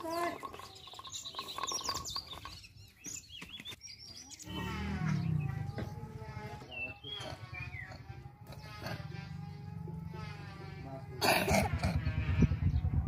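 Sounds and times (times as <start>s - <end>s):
small birds chirping: 0.0s - 9.7s
farm animal lowing: 4.2s - 13.0s.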